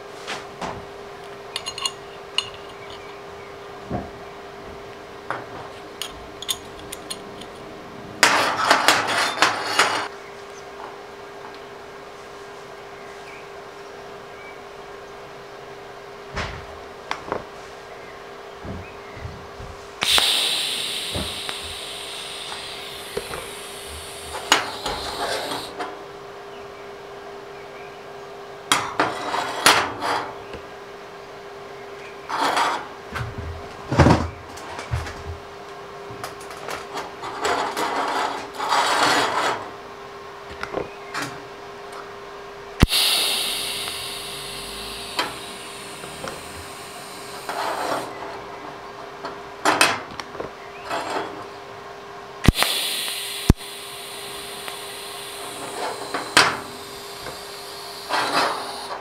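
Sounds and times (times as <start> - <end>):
metal tube scraping and clinking: 1.6 - 3.1, 6.0 - 7.6
steady hum: 19.9 - 25.8, 42.7 - 48.6, 52.4 - 59.0
welding arc crackling and hissing: 20.0 - 25.8, 42.8 - 48.1, 52.4 - 59.0.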